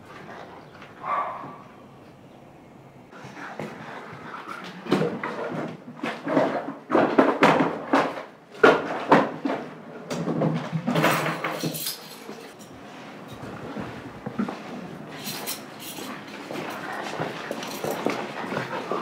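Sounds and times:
things rustling: 0:00.0 - 0:19.0
drawer contents clattering: 0:04.9 - 0:19.0.

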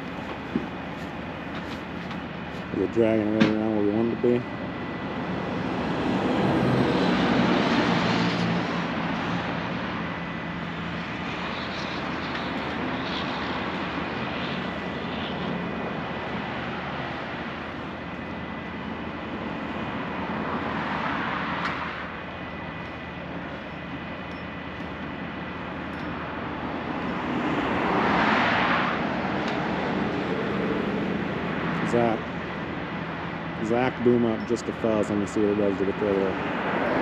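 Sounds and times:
tow truck engines running: 0:00.0 - 0:28.0, 0:28.6 - 0:37.0
highway traffic passing: 0:00.0 - 0:37.0.

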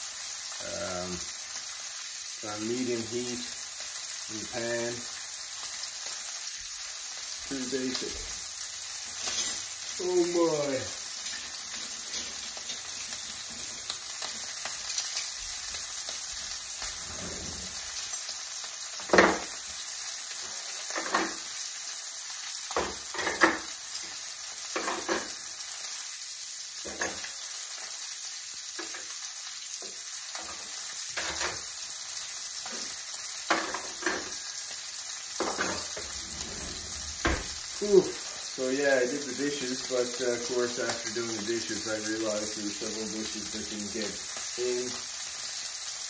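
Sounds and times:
steaks sizzling in a pan: 0:00.0 - 0:46.0.

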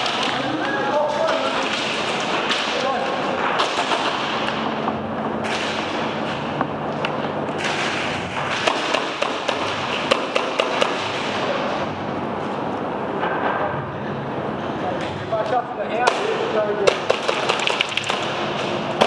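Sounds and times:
airsoft guns firing: 0:07.6 - 0:11.3, 0:16.8 - 0:18.4.

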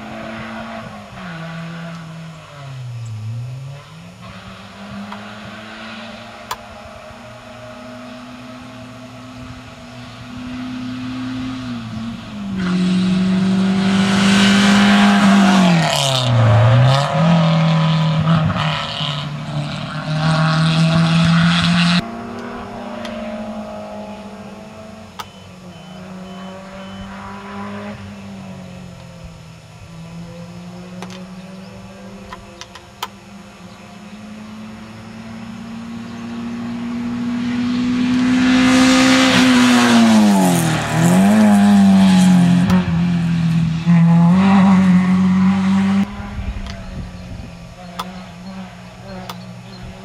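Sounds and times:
rally car engine revving: 0:00.0 - 0:50.0.

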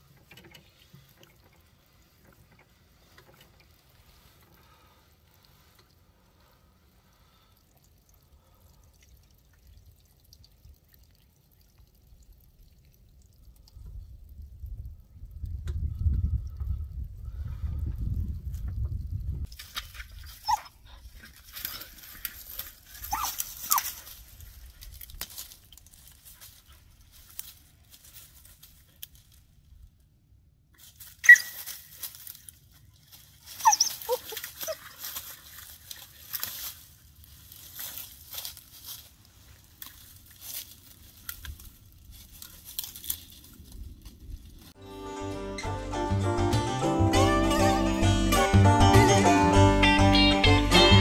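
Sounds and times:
crunching in dry leaves: 0:19.5 - 0:29.9, 0:30.8 - 0:44.8
dog yipping: 0:20.4 - 0:20.8, 0:23.0 - 0:24.0, 0:31.2 - 0:31.7, 0:33.5 - 0:34.9.

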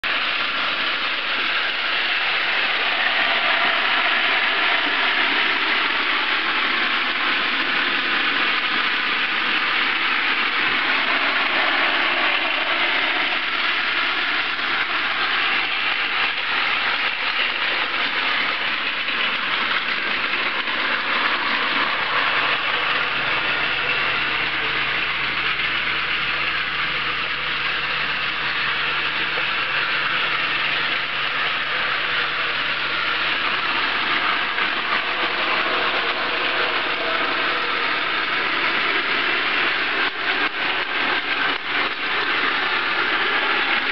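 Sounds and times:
toy train motor whirring: 0:30.8 - 0:43.8.

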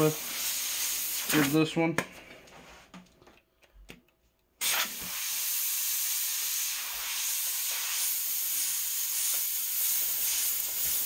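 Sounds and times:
airbrush hissing: 0:00.0 - 0:01.6, 0:04.6 - 0:11.0.

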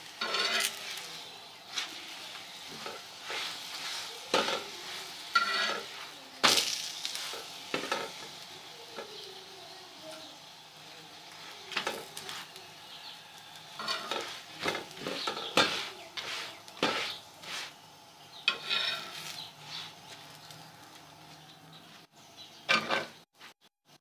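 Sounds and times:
flatbread sizzling on griddle: 0:00.0 - 0:24.0
utensil scraping and knocking pan: 0:00.1 - 0:08.4, 0:11.7 - 0:12.6, 0:13.7 - 0:17.8, 0:18.4 - 0:20.4, 0:22.7 - 0:23.2.

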